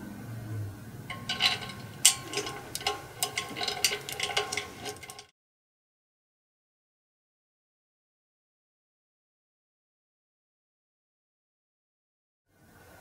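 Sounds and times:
metallic clicks and clinks: 1.1s - 5.3s.

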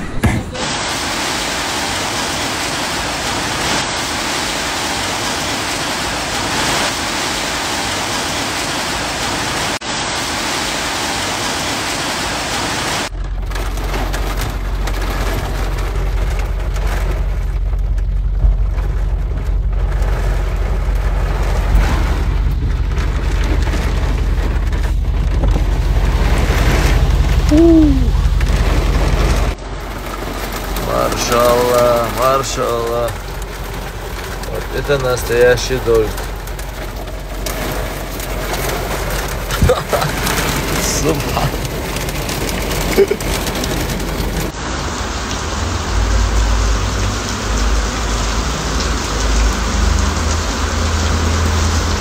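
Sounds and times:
heavy rain hissing: 0.0s - 52.0s
rain heard inside a car: 0.0s - 52.0s
deep steady rumble: 13.1s - 52.0s.

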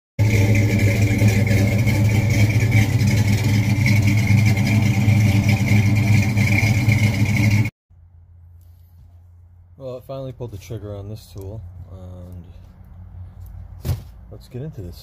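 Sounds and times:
car engine idling: 0.2s - 8.6s.

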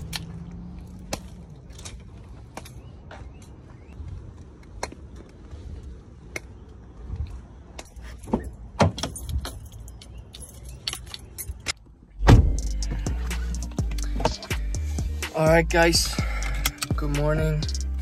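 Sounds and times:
keys jangling: 7.9s - 11.7s
car door opening: 12.2s - 13.4s.

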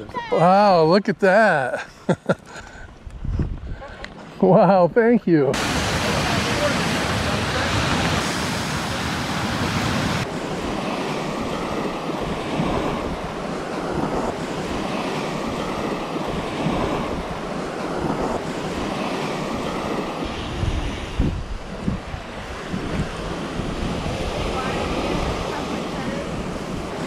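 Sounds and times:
wind on microphone: 2.8s - 4.1s, 5.6s - 27.0s
waves washing on shore: 5.5s - 27.0s.

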